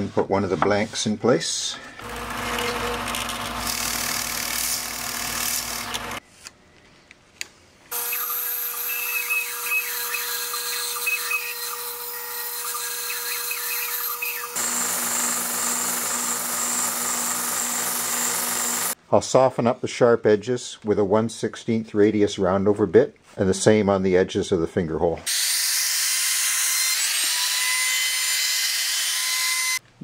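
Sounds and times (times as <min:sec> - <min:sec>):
bandsaw cutting with high chirps: 0:02.0 - 0:06.2, 0:07.9 - 0:19.0, 0:25.3 - 0:29.8
belt sander sanding wood: 0:02.0 - 0:06.2, 0:07.9 - 0:19.0
drill press boring wood: 0:02.0 - 0:06.2, 0:07.9 - 0:19.0.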